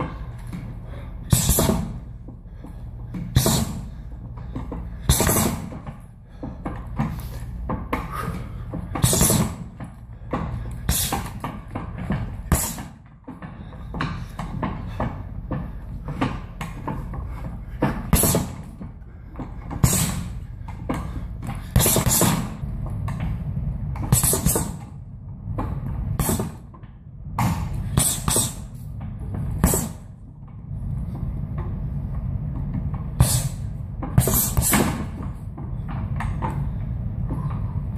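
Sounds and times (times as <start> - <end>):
punches on heavy bag: 1.3 - 2.0, 5.1 - 5.8, 9.0 - 9.7, 18.1 - 18.7, 19.8 - 20.3, 21.8 - 22.6, 24.1 - 24.8.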